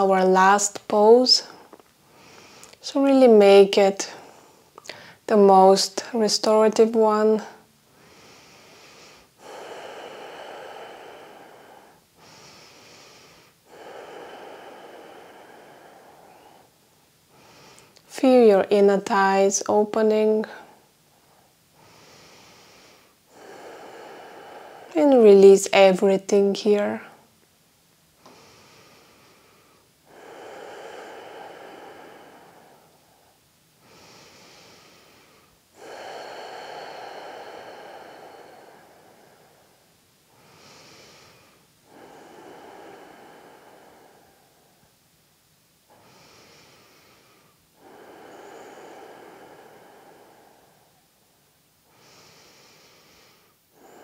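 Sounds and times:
person breathing deeply: 1.4s - 2.8s, 4.0s - 5.3s, 7.4s - 18.1s, 20.5s - 25.4s, 28.2s - 45.0s, 45.8s - 54.0s.

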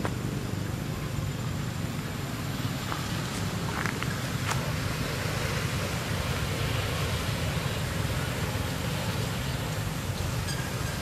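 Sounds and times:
low background noise with hiss: 0.0s - 11.0s.

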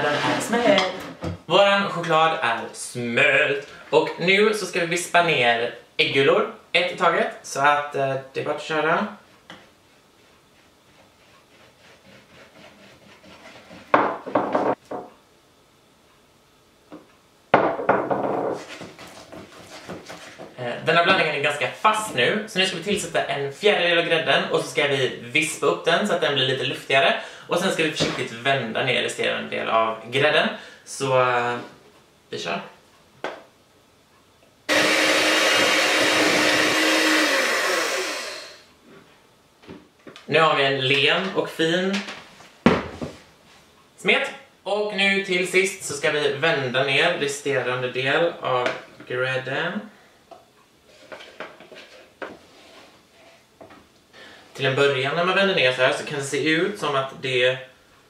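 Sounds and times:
electric hand mixer running: 34.7s - 38.7s
mixer motor winding down: 34.7s - 38.7s.

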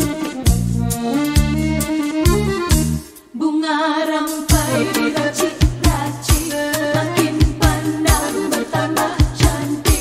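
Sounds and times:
pop song with drum beat: 3.9s - 10.0s.

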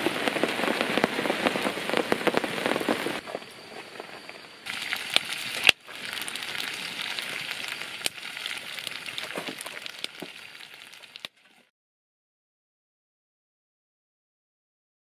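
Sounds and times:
wood fire crackling: 0.0s - 11.7s
food sizzling in a wok: 4.6s - 11.7s.

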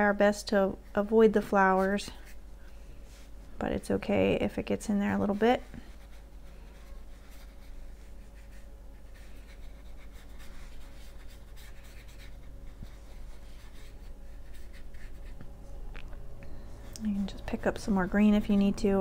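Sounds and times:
faint steady hum: 0.0s - 19.0s
paintbrush brushing on paper: 5.0s - 15.4s, 17.2s - 19.0s.

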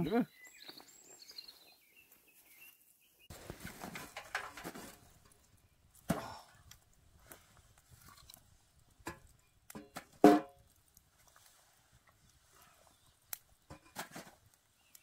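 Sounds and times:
burning wood popping: 3.3s - 15.0s
wood fire crackling: 3.3s - 15.0s.

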